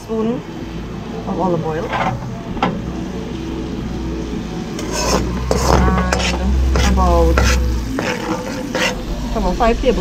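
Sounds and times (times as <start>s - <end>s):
steady low hum: 0.0s - 10.0s
metal spoon scraping a wok: 1.8s - 2.4s, 4.8s - 9.3s.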